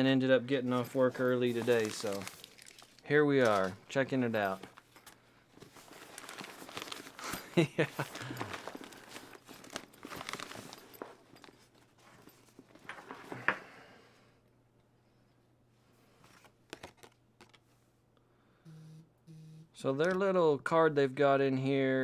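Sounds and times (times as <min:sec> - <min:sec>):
cooler bag rustling and crinkling: 0:00.8 - 0:04.8, 0:05.6 - 0:13.2.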